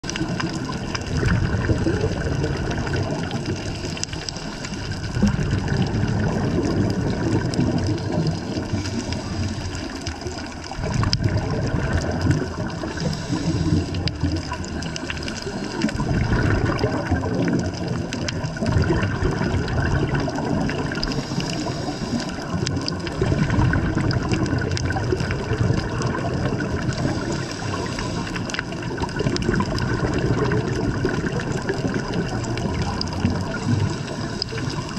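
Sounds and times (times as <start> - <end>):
underwater rushing bubbling water: 0.0 - 34.9
faint clicks: 0.1 - 1.1, 2.5 - 5.9, 6.8 - 11.4, 12.0 - 16.1, 20.2 - 23.2.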